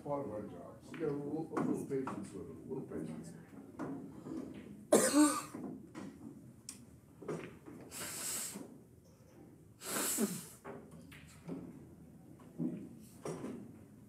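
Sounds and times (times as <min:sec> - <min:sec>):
person exhaling: 0:09.8 - 0:10.6.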